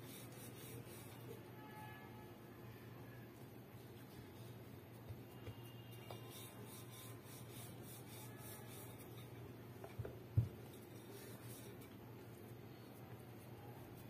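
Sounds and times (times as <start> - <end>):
rolling pin rubbing on dough: 0.0 - 1.4, 4.1 - 9.4, 10.6 - 12.4.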